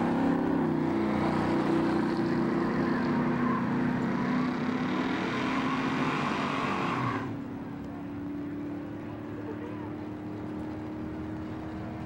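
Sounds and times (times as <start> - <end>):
engine revving loud: 0.0 - 7.4
tyres spinning in a burnout: 0.0 - 12.0.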